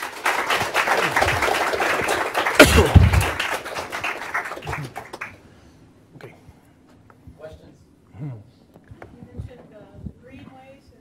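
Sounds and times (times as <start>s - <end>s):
audience applauding: 0.0s - 5.4s.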